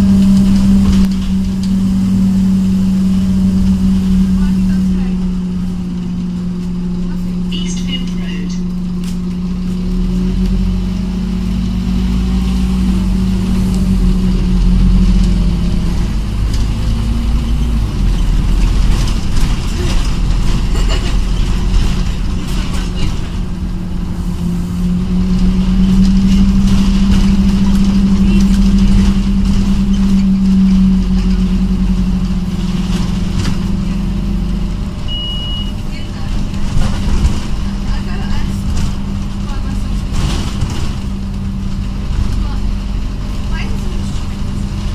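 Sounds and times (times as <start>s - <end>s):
bus engine drone: 0.0s - 44.9s
interior rattles: 0.0s - 44.9s
road rumble: 0.0s - 44.9s
short high beep: 35.1s - 35.8s.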